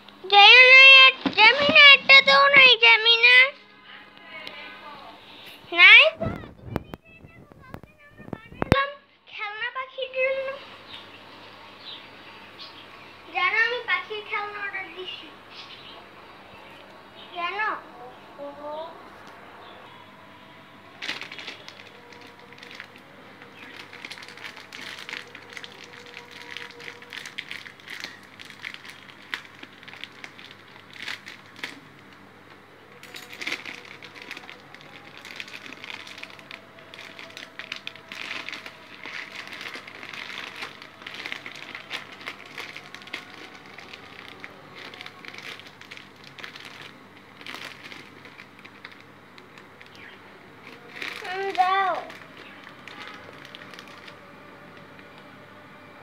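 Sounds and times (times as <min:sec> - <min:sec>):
plastic bag crinkling: 0:00.3 - 0:03.7, 0:20.9 - 0:32.3, 0:32.9 - 0:55.2
seeds rustling in a bag: 0:21.0 - 0:32.1, 0:33.0 - 0:54.3.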